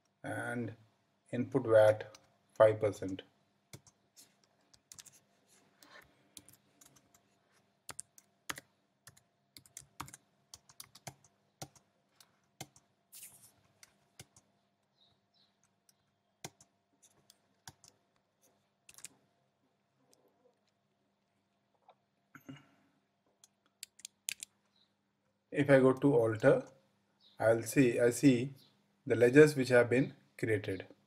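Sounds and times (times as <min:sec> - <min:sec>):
computer keyboard typing: 0:03.7 - 0:05.2, 0:06.4 - 0:12.9, 0:13.8 - 0:14.5, 0:15.6 - 0:18.0, 0:18.9 - 0:19.2, 0:23.4 - 0:24.5.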